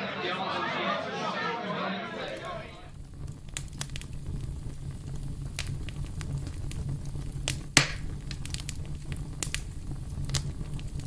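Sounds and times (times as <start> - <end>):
loud fire crack: 2.1 - 11.0
fire crackling and popping: 2.2 - 11.0.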